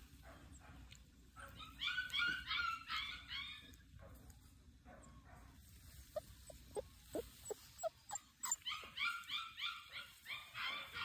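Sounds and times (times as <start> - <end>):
puppy whimpering: 6.1 - 9.9.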